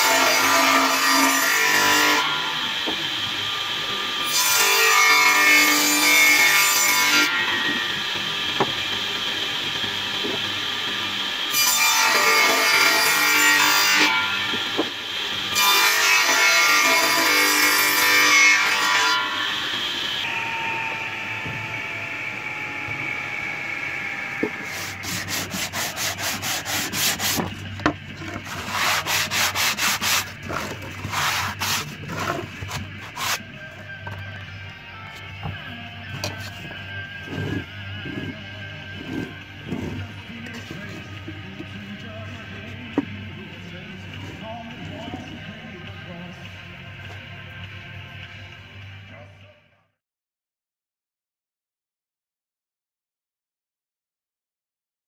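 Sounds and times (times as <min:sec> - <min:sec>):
saw blade cutting wood: 0:00.0 - 0:33.7, 0:36.1 - 0:41.8
hand plane rasping strokes: 0:24.4 - 0:33.5, 0:36.1 - 0:41.0.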